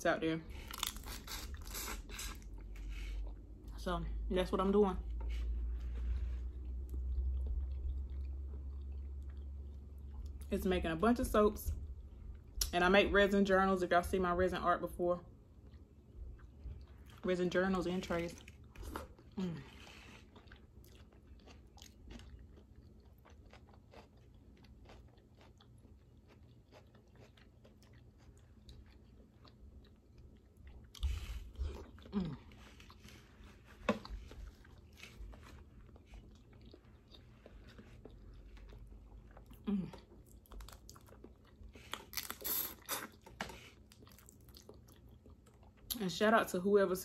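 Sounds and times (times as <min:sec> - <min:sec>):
chewing and smacking: 0:05.2 - 0:10.5, 0:15.5 - 0:17.2, 0:18.3 - 0:46.0.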